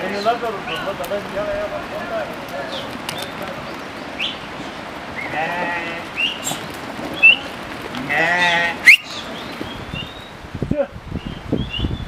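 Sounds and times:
goats bleating: 5.2 - 6.6, 8.0 - 8.9.

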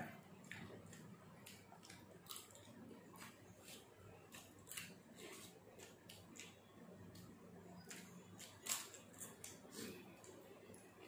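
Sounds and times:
crunching crisp papad: 0.8 - 7.2.

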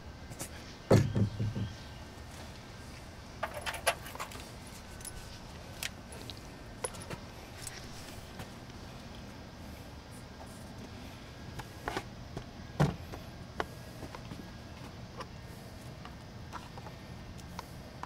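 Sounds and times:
knocks: 0.9 - 1.8.

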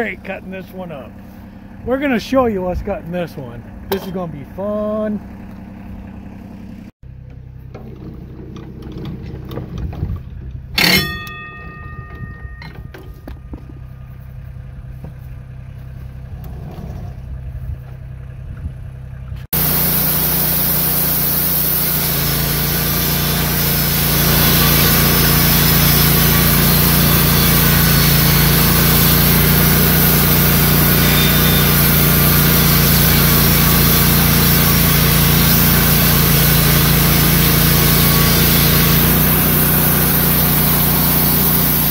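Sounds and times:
engine running: 0.0 - 41.9
metallic clank: 7.2 - 14.4
band saw cutting log: 10.8 - 13.1, 19.5 - 41.9.

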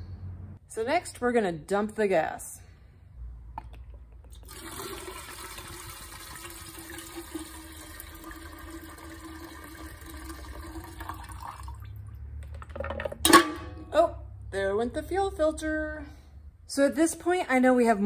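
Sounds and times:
fuel pouring into metal can: 4.4 - 12.0.

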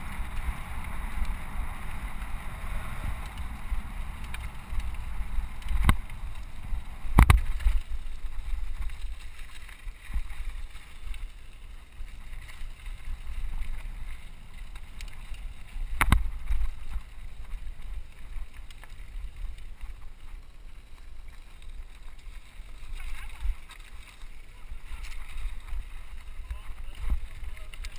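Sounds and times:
wind rumble on microphone: 0.0 - 27.9
bike clattering over rocks: 4.2 - 20.0.

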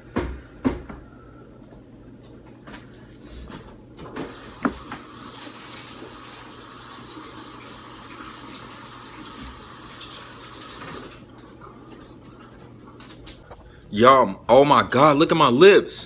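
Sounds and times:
water tap running: 4.1 - 13.3.

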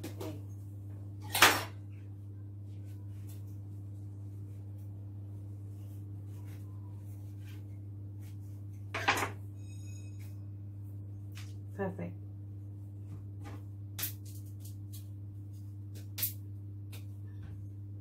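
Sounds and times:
steady low hum: 0.0 - 18.0
kitchenware clatter: 8.9 - 9.4.

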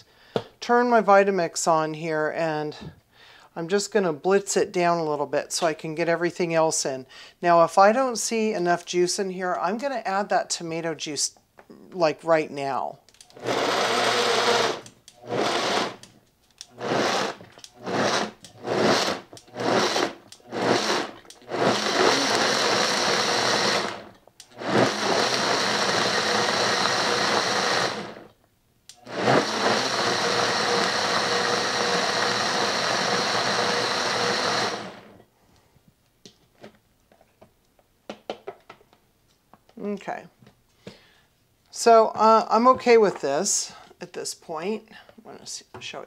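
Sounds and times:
blender chopping tomatoes: 13.3 - 16.1, 16.7 - 28.3, 29.0 - 35.2.

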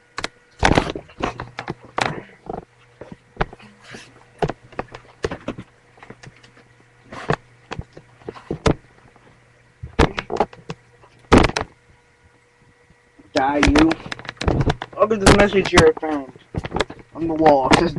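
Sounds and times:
faint electrical hum: 0.0 - 17.9
handling knocks and rustles: 13.4 - 17.9.

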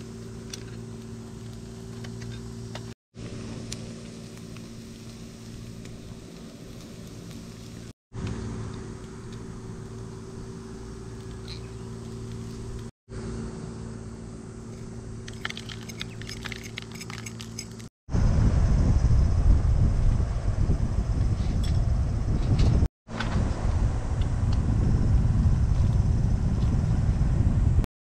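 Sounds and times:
steady low hum: 0.0 - 27.8
loud low rushing noise: 18.1 - 21.2.

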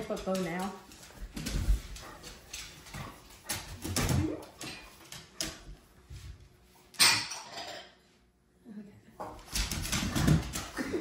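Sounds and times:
dog scuffling: 0.0 - 6.6, 9.2 - 11.0.

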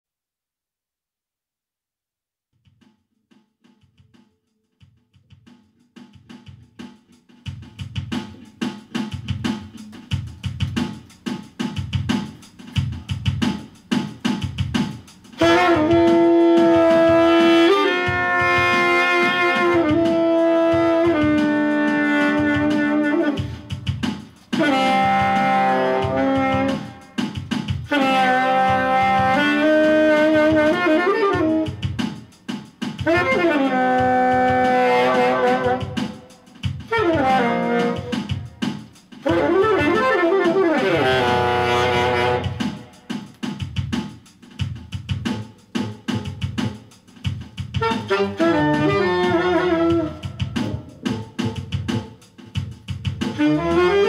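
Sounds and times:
drum kit groove: 2.6 - 54.0
saxophone jazz melody: 15.2 - 32.3, 32.9 - 38.6, 39.2 - 43.1, 47.6 - 52.2, 52.9 - 54.0.

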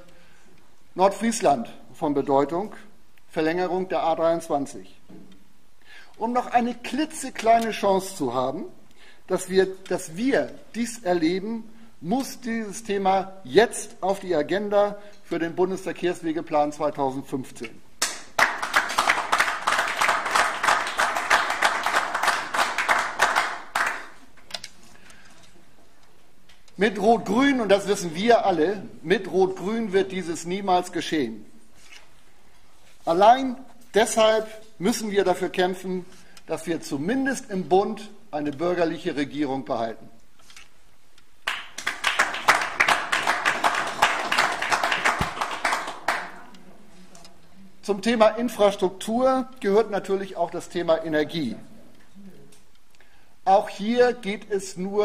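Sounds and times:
audience applauding: 18.0 - 24.2, 41.4 - 46.4.

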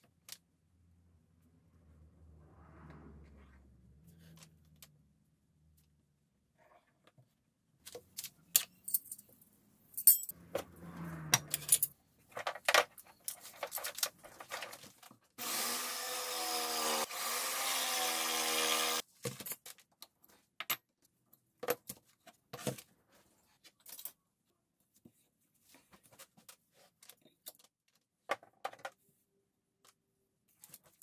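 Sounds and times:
tools clicking and clattering: 10.0 - 10.4, 11.4 - 15.0.

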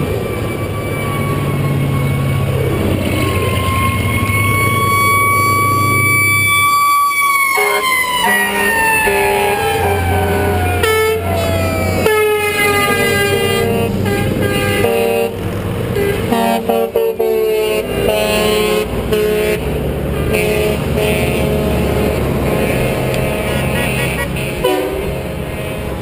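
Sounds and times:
siren wail sliding down: 0.0 - 14.1
diesel engine rumble: 0.0 - 26.0
truck air horns honking: 3.3 - 26.0.

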